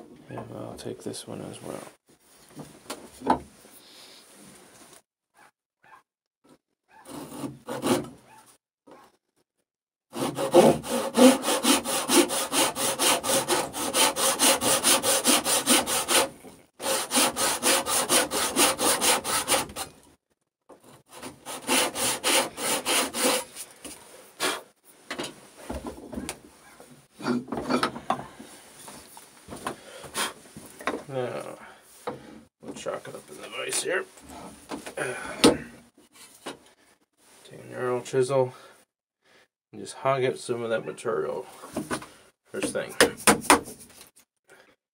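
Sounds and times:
hand saw cutting wood: 0:07.0 - 0:08.2, 0:10.1 - 0:20.0, 0:20.7 - 0:24.7.

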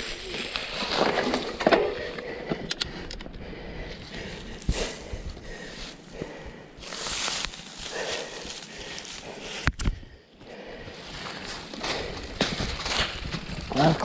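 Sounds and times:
bike tyres crunching leaves: 0:00.0 - 0:02.2, 0:06.8 - 0:09.6, 0:11.0 - 0:14.0.

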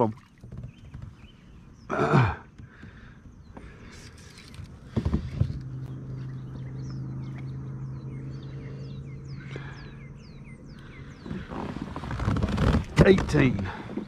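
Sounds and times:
low hum: 0:03.7 - 0:11.9.

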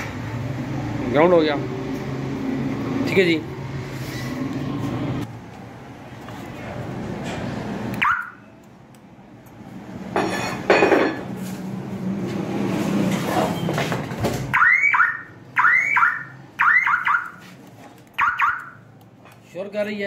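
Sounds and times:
car alarm chirp: 0:08.0 - 0:08.4, 0:14.5 - 0:17.4, 0:18.2 - 0:18.8.

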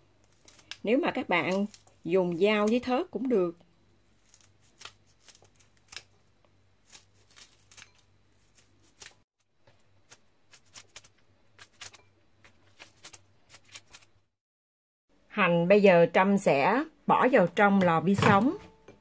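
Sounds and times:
scissors snipping green onions: 0:04.2 - 0:06.1, 0:06.8 - 0:09.2, 0:10.0 - 0:12.0.

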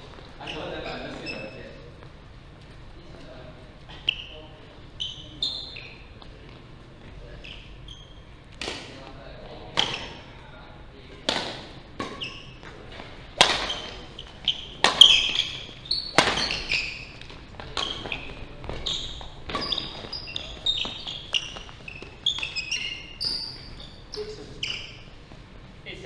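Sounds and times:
sneakers squeaking on court floor: 0:00.0 - 0:02.8, 0:03.8 - 0:10.4, 0:11.5 - 0:25.7
racket smacking shuttlecock: 0:11.3 - 0:12.7, 0:13.3 - 0:18.8.

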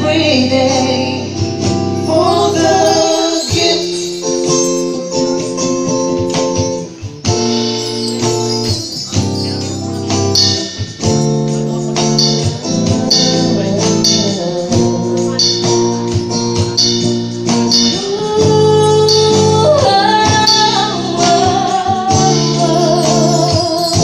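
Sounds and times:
guitar: 0:00.0 - 0:24.0
conga drums: 0:01.4 - 0:24.0
cymbal: 0:01.8 - 0:06.4, 0:07.3 - 0:21.6.

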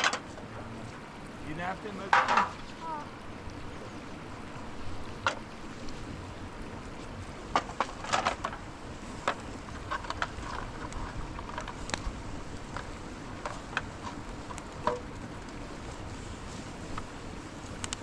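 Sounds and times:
metal plates and pans clinking: 0:02.1 - 0:02.5.

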